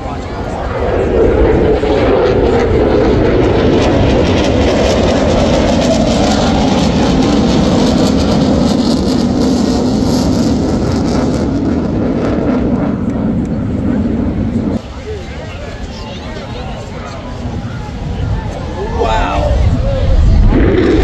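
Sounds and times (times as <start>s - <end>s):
jet afterburner roar: 0.0s - 21.0s.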